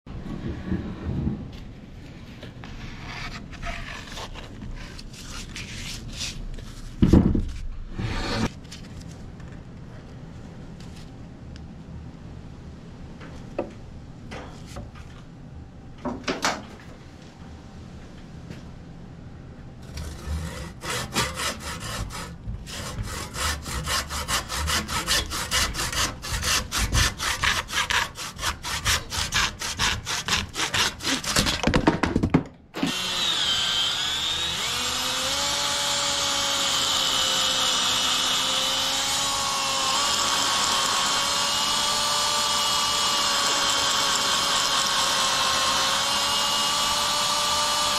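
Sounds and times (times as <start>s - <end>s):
hand saw cutting wood: 19.8s - 31.8s, 32.8s - 47.9s
electric drill boring into wood: 32.8s - 47.9s.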